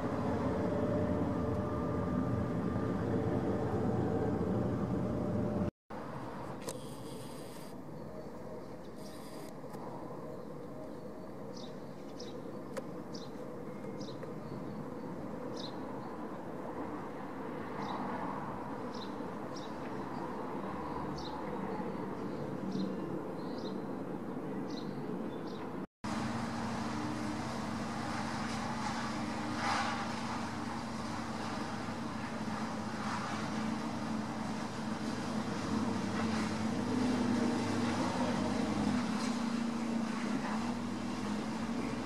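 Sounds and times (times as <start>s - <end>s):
low humming drone: 0.0s - 5.7s
distant jet engine rumble: 0.0s - 42.0s.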